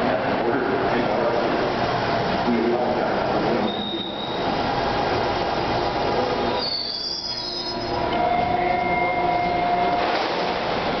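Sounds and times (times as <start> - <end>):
subway train running noise: 0.0 - 11.0
high brake squeal: 3.6 - 4.5, 6.6 - 9.9.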